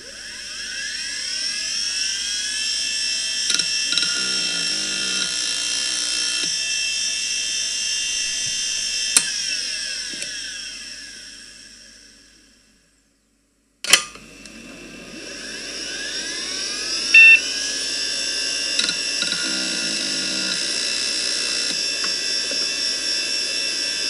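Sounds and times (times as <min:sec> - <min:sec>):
hard drive whine: 0:00.0 - 0:24.0
hard drive clicks: 0:17.2 - 0:17.4.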